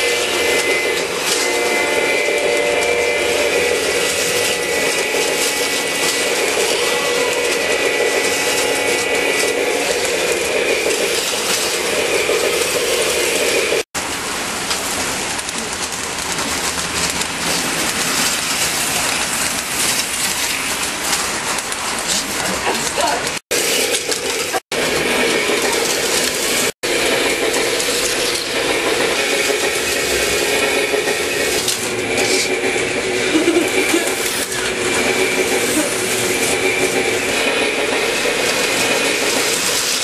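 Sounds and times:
whining tones: 0:00.0 - 0:13.8
model train motors whirring: 0:00.0 - 0:40.0.

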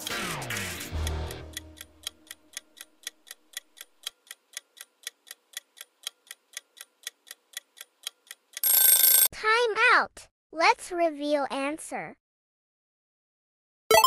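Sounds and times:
countdown timer ticking: 0:00.0 - 0:06.9.

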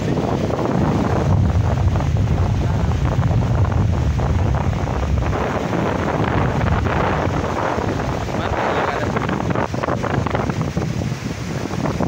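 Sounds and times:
small waves breaking on beach: 0:00.0 - 0:12.0
wind buffeting microphone: 0:00.0 - 0:12.0.

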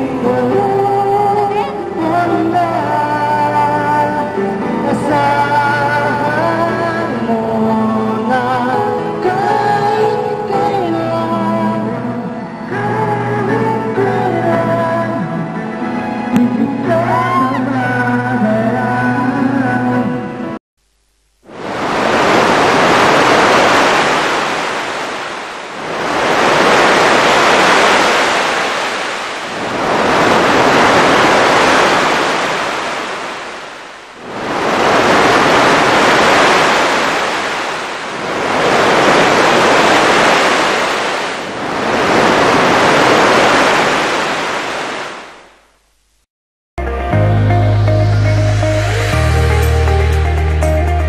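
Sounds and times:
surf washing onto beach: 0:21.4 - 0:45.6.

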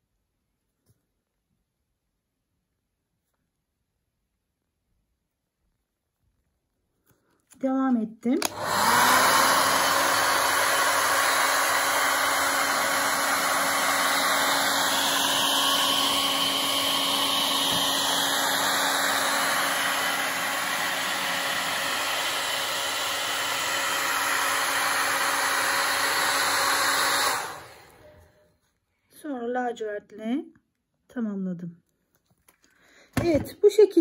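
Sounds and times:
hair dryer blowing: 0:08.4 - 0:28.3.

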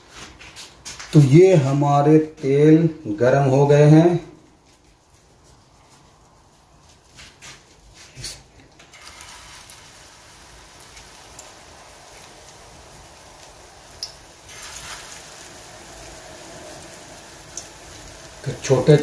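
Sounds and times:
batter sizzling in hot oil: 0:08.8 - 0:19.0.

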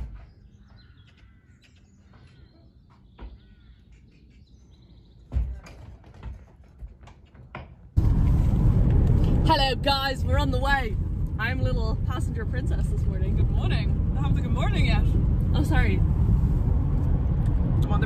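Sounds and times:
small birds chirping: 0:00.0 - 0:05.6
road noise inside moving car: 0:08.0 - 0:18.0.

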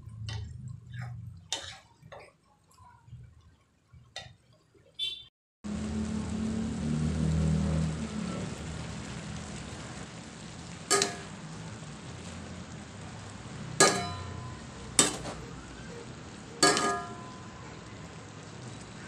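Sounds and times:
noodles sizzling in a pan: 0:00.0 - 0:03.2, 0:07.2 - 0:19.0
utensil knocking metal pan: 0:10.9 - 0:11.4, 0:13.8 - 0:15.4, 0:16.6 - 0:17.6.

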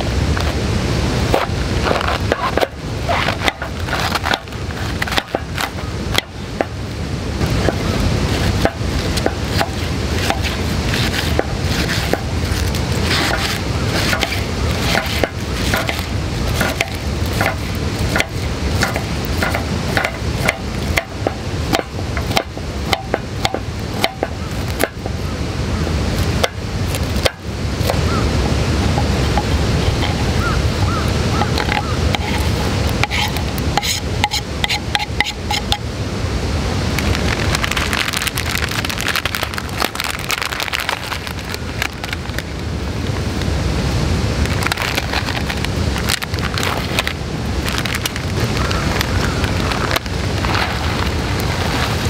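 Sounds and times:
low background rush: 0:00.0 - 0:52.0
knife cutting cabbage on board: 0:08.4 - 0:21.1, 0:32.2 - 0:35.7.

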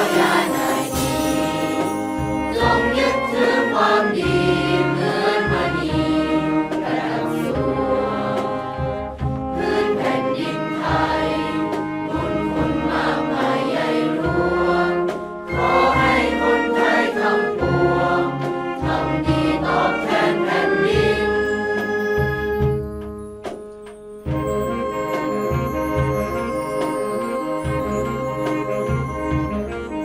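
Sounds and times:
choir singing in unison: 0:00.0 - 0:22.0
orchestral accompaniment: 0:00.0 - 0:30.0.

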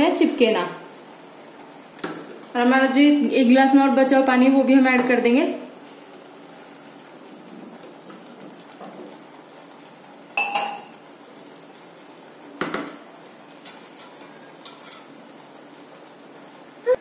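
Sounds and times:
metallic clinks on pressure cooker: 0:10.4 - 0:10.9.

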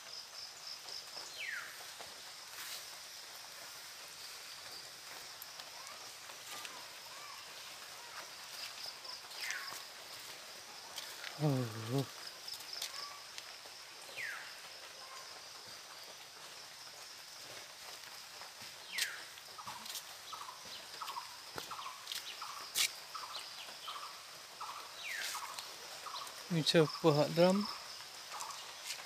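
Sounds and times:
insect drone: 0:00.0 - 0:29.0.

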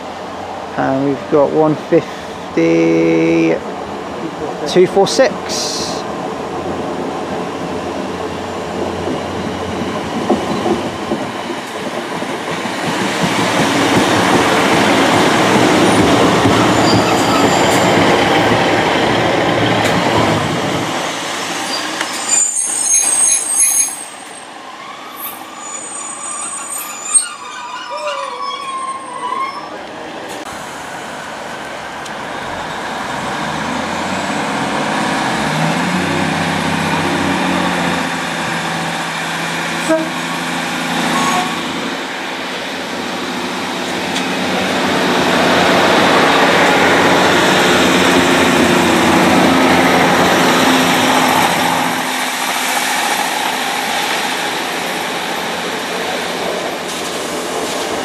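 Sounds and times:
approaching diesel train engine: 0:00.0 - 0:58.0
diesel train passing: 0:00.0 - 0:58.0
train wheel squeal: 0:15.8 - 0:18.4, 0:21.6 - 0:29.9, 0:41.1 - 0:41.6.

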